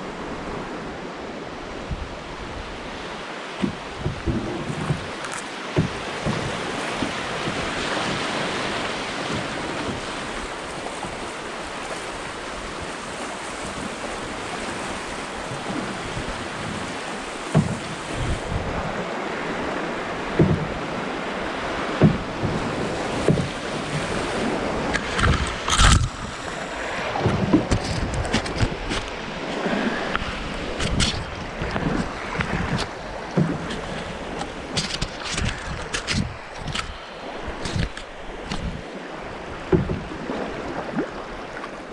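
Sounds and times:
whitewater rushing: 0:00.0 - 0:41.9
knocks on canoe: 0:03.6 - 0:11.2, 0:17.5 - 0:18.8, 0:20.3 - 0:20.9, 0:21.8 - 0:25.6, 0:27.2 - 0:36.8, 0:39.7 - 0:40.1.

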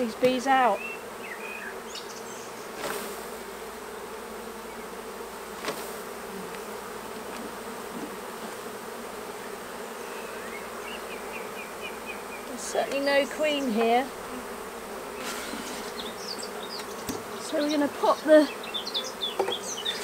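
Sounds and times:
honeybees buzzing: 0:00.0 - 0:20.0
knocks on wooden box: 0:19.4 - 0:19.6.

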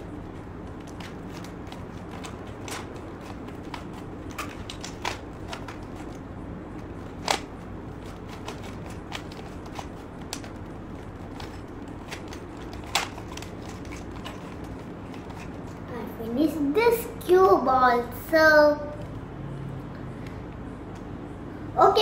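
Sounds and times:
puzzle cube clicking: 0:00.1 - 0:06.2, 0:06.8 - 0:15.8.

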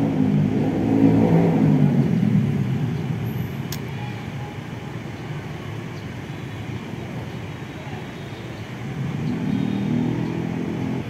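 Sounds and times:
low traffic rumble: 0:00.0 - 0:11.0
sharp click: 0:03.7 - 0:03.9.

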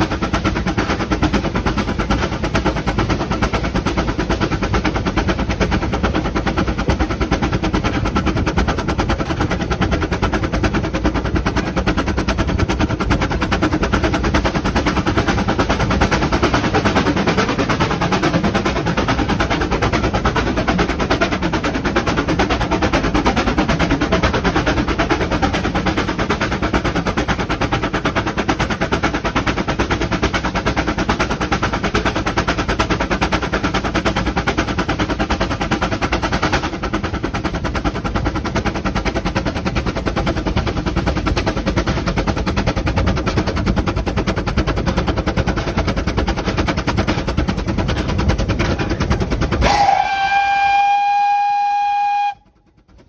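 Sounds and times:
steam locomotive running rattle: 0:00.0 - 0:53.0
steam whistle: 0:49.6 - 0:52.6.

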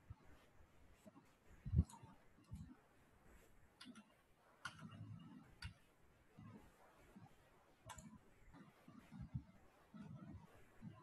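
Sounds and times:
computer mouse clicks: 0:01.7 - 0:02.8, 0:03.8 - 0:05.9, 0:07.8 - 0:09.4.

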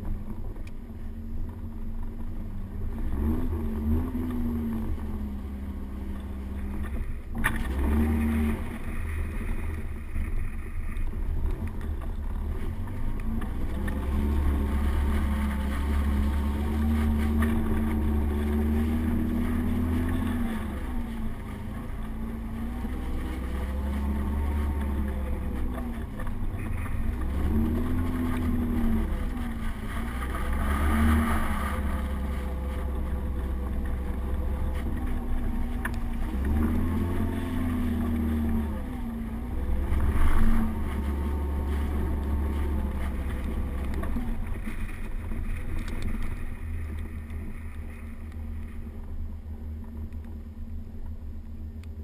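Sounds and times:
car engine revving: 0:01.8 - 0:51.0.

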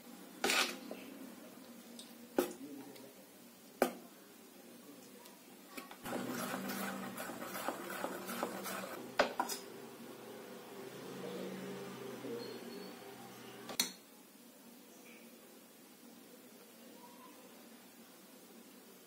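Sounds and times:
spoon stirring batter in bowl: 0:06.0 - 0:09.6.

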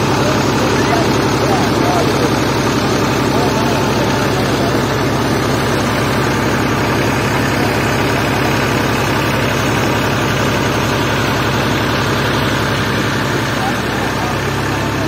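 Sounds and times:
pump engine running: 0:00.0 - 0:15.0.

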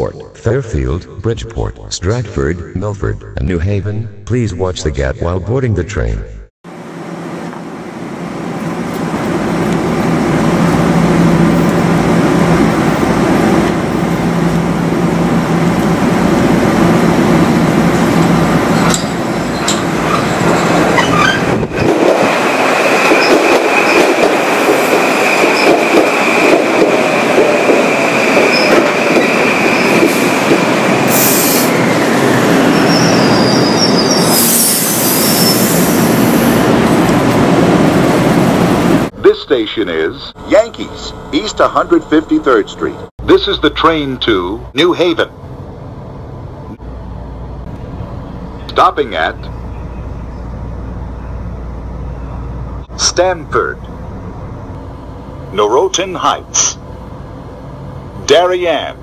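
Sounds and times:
electric train rolling: 0:06.7 - 0:39.2
train wheel squeal: 0:19.5 - 0:21.5, 0:28.4 - 0:30.3, 0:32.7 - 0:36.2
higher squeaks: 0:19.5 - 0:21.6, 0:32.6 - 0:35.8.

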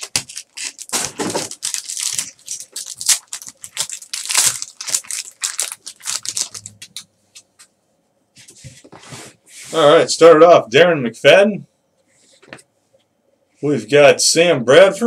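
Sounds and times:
foil wrapper crinkling and ripping: 0:00.0 - 0:07.0.

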